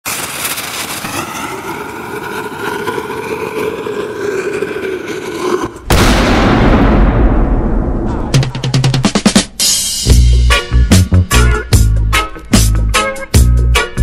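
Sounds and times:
engine-like rushing noise: 0.1 - 5.9
loud blast of noise: 5.8 - 8.6.

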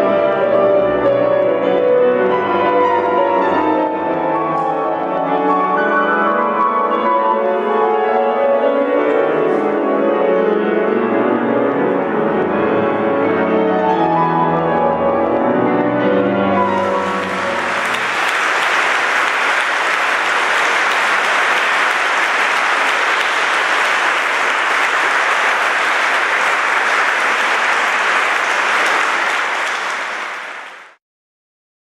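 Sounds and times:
audience applause: 16.6 - 31.0.

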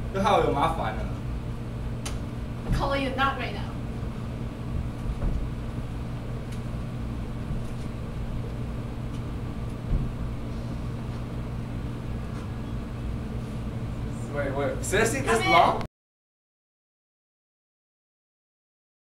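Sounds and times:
steady low hum: 0.0 - 15.9
soft knocks: 9.9 - 10.2.

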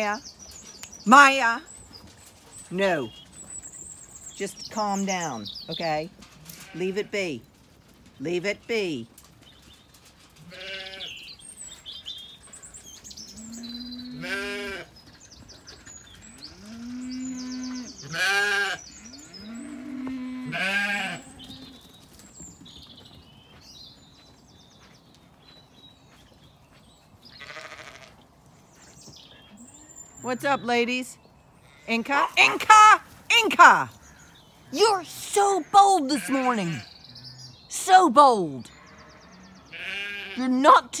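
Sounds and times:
birds chirping faintly: 0.0 - 41.0
sheep bleating: 10.4 - 11.2, 13.5 - 14.9, 16.5 - 18.8, 19.4 - 21.5, 27.4 - 28.2, 35.5 - 37.3, 38.7 - 40.5.

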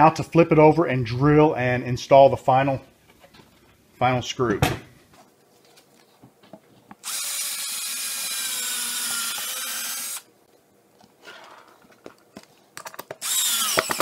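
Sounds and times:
cordless drill boring into wood: 7.0 - 10.3, 13.2 - 14.0.

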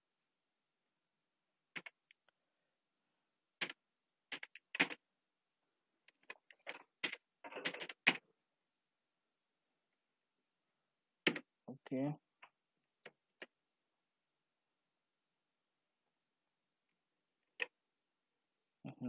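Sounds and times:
keyboard typing: 1.7 - 2.3, 3.6 - 5.0, 6.1 - 8.2, 11.2 - 11.5.

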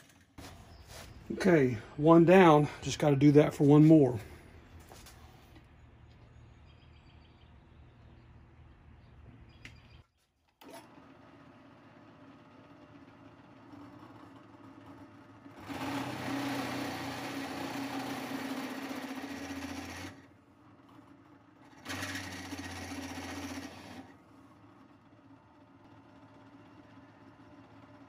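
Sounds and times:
drill press motor humming: 10.6 - 28.0.

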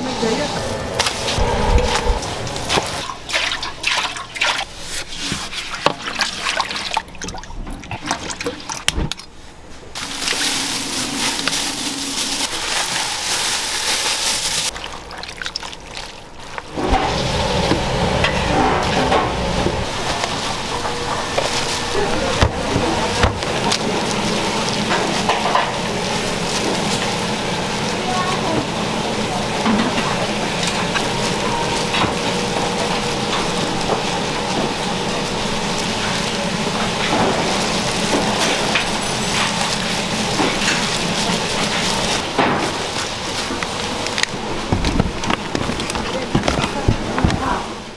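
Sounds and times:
frying pan and utensils clattering: 35.5 - 42.9.

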